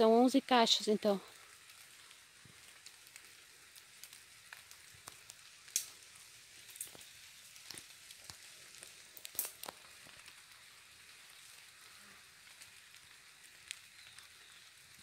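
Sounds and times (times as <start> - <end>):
twigs crackling: 0.0 - 15.0.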